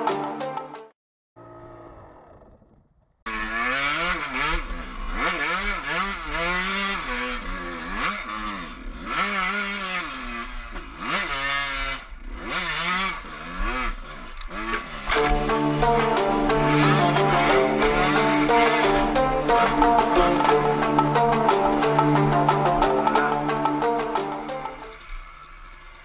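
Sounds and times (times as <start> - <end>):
motorcycle engine revving: 3.3 - 15.2.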